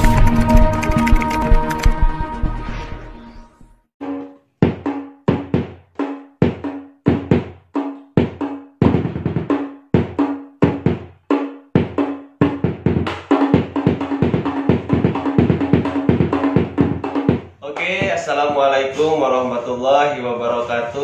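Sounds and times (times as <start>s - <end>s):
bass drum struck with mallet: 4.6s - 5.8s, 11.8s - 18.7s
hand drum slapped: 8.2s - 11.0s, 11.8s - 18.7s.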